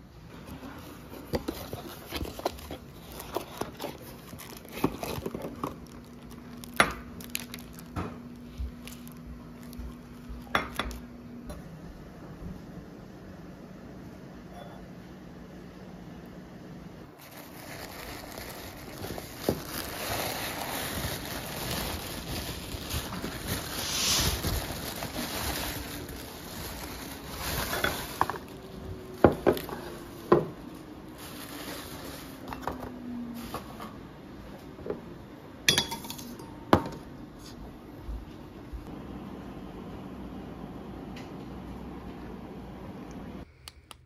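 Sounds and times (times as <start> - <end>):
tissue paper crinkling: 0.8 - 10.5, 17.2 - 32.6
glass and steel clinking: 35.7 - 36.6.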